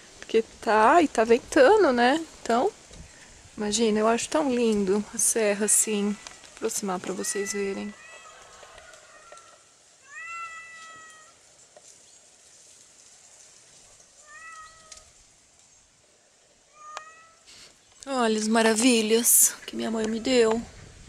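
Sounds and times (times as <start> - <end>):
cat meowing: 7.1 - 8.4, 10.0 - 11.4, 14.2 - 15.1, 16.7 - 17.4.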